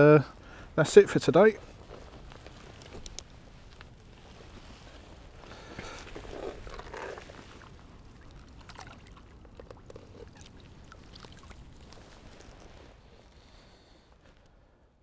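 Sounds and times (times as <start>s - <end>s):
water splashing: 6.0s - 12.8s.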